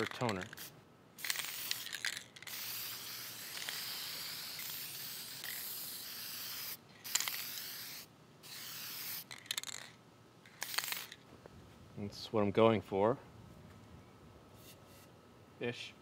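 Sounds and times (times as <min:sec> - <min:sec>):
aerosol spray can hissing: 0:00.4 - 0:09.7.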